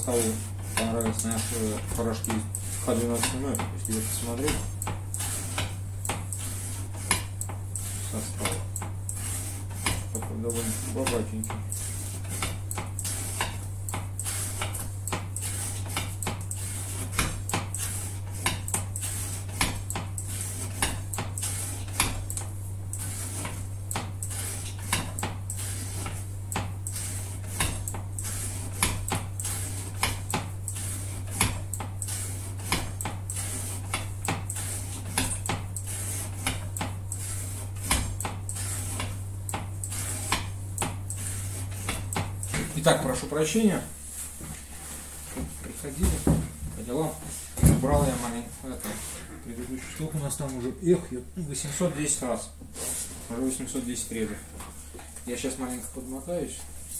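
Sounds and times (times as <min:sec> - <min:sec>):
sharp clicks and knocks: 0:00.0 - 0:43.0
steady low hum: 0:00.0 - 0:56.9.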